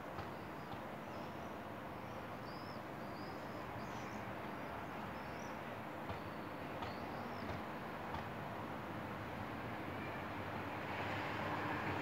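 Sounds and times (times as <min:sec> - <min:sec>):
small birds chirping: 0:00.6 - 0:07.6.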